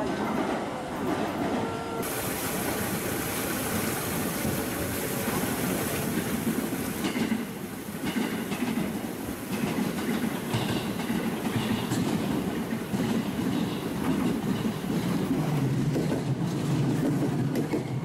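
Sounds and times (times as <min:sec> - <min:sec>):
electric train rumbling: 0:00.0 - 0:18.0.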